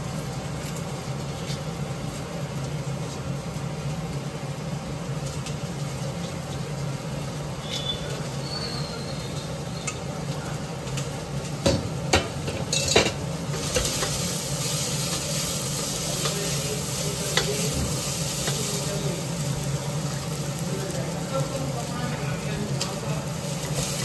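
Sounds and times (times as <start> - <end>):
vegetables sizzling in a pot: 0.0 - 24.0.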